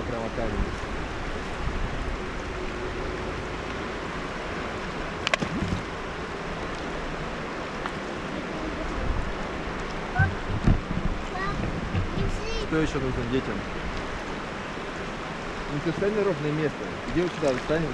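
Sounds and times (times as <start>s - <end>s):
river water rushing: 0.8s - 17.9s
stone splashing into water: 5.3s - 5.9s.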